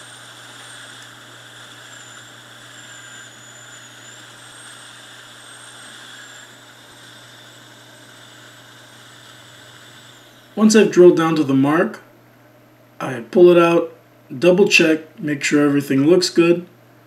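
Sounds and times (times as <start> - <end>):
electric drill boring stone: 0.0 - 11.1
high whine: 0.0 - 12.0.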